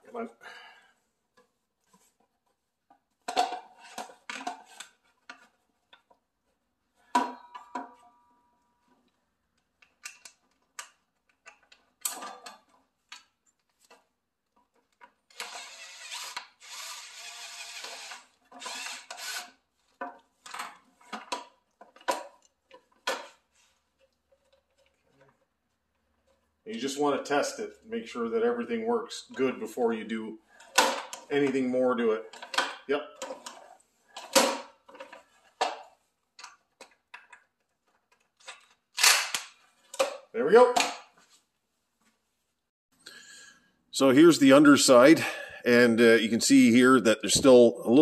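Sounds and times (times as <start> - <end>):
plastic clicks and clatter: 1.3 - 6.2, 8.8 - 15.6, 17.8 - 26.4, 32.2 - 41.2.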